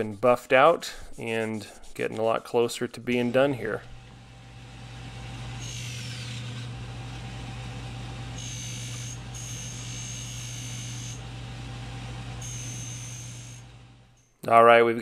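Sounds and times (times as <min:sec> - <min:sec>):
buffing wheel motor hum: 0:03.8 - 0:14.2.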